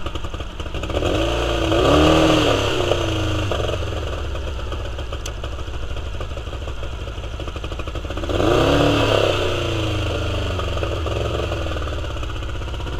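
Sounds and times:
outboard engine revving and idling: 0.7s - 4.7s, 8.1s - 12.9s.

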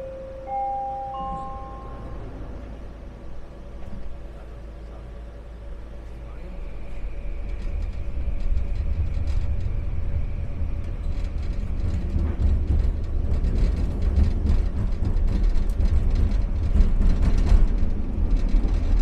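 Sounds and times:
train car rumbling: 0.0s - 19.0s
track clicks and rattles: 6.6s - 19.0s.

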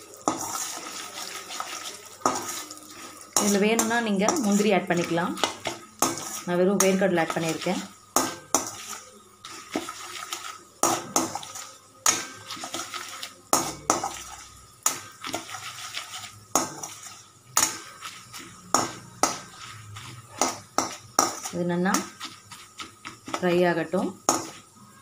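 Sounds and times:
food frying in oil: 0.0s - 25.0s
spatula scraping pan: 0.0s - 25.0s
spatula knocking against pan: 8.1s - 8.9s.

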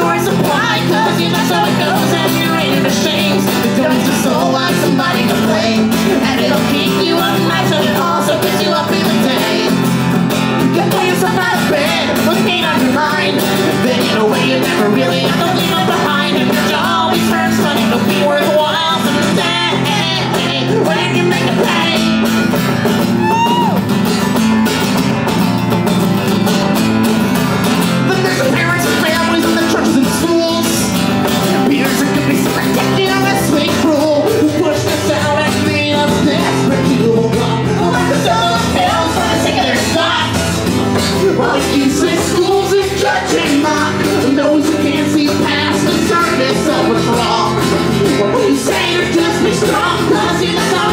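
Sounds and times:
person singing: 0.0s - 10.0s, 10.6s - 22.3s, 28.0s - 50.9s
banjo: 0.0s - 23.2s, 23.8s - 50.9s
acoustic guitar: 0.0s - 50.9s.

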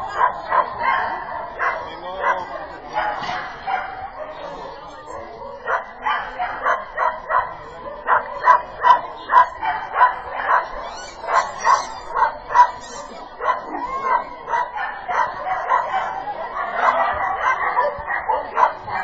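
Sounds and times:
dog barking and yipping: 5.7s - 19.0s.

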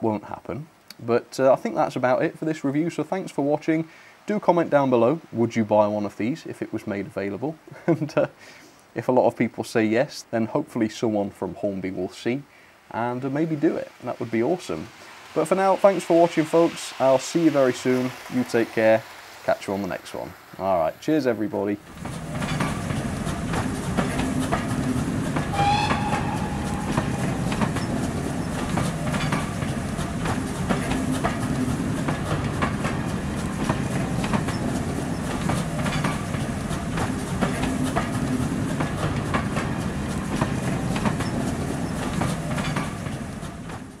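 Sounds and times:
train wheels clicking over rails: 13.2s - 20.9s, 21.5s - 44.0s
train whistle: 25.5s - 28.2s.

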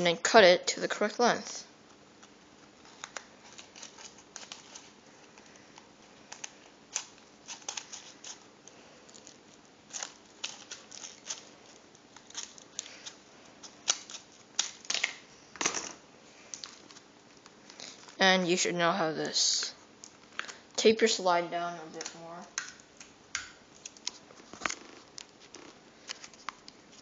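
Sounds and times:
scissors snipping paper: 2.8s - 15.1s.

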